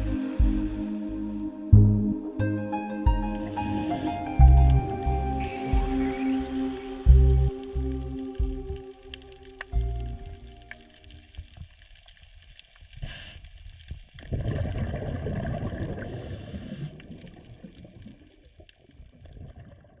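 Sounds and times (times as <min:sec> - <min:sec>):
bubbling underwater water: 0:13.9 - 0:20.0
low rumbling burst of bubbles: 0:14.2 - 0:20.0.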